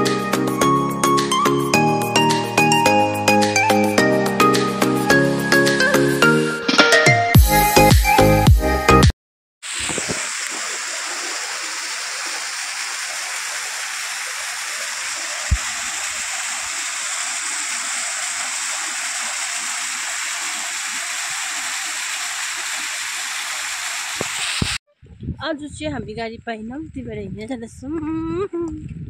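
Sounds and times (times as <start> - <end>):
waterfall splashing: 9.6 - 24.8.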